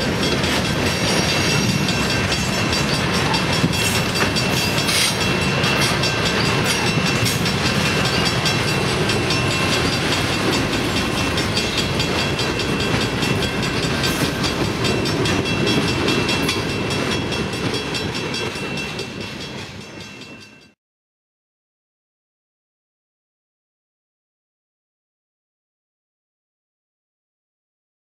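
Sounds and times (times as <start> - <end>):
freight train rumbling past: 0.0 - 20.8.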